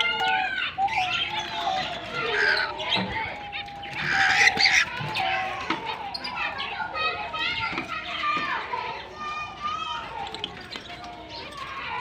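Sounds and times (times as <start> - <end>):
harsh cockatiel calls: 0.2 - 6.7
cockatiels whistling: 0.7 - 5.2.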